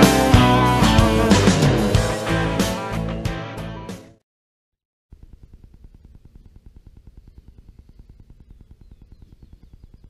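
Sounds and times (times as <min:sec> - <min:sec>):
wind rumbling on microphone: 0:05.2 - 0:10.0
faint bird chirps: 0:06.2 - 0:10.0.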